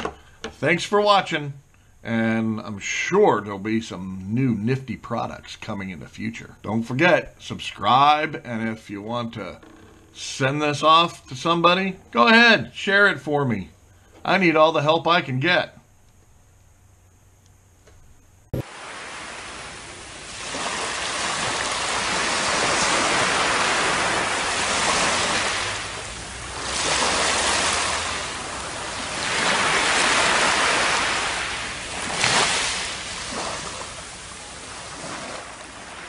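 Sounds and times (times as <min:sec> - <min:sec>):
click: 0:17.4 - 0:18.0
waves washing over wet sand: 0:18.6 - 0:36.0.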